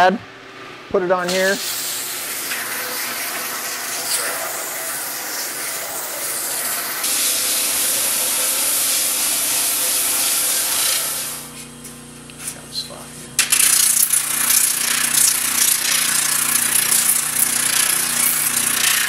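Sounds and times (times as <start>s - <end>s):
belt sander sanding a board: 2.6s - 11.7s, 13.5s - 19.0s.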